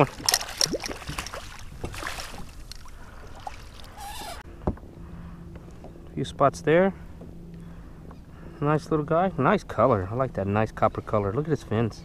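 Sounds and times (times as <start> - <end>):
fish splashing in a net: 0.0 - 3.6
water sloshing and pouring: 0.0 - 4.0.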